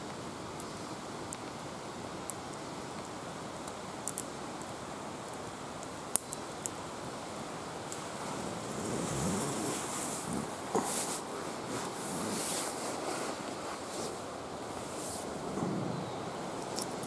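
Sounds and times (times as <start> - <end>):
campfire hissing: 0.0 - 17.0
rustling: 7.8 - 15.9.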